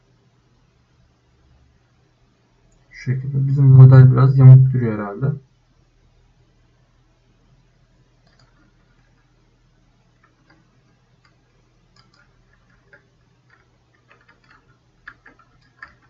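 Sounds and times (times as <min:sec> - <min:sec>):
steady low hum: 0:00.0 - 0:16.0
mouse and keyboard clicks: 0:08.2 - 0:09.2, 0:10.2 - 0:16.0.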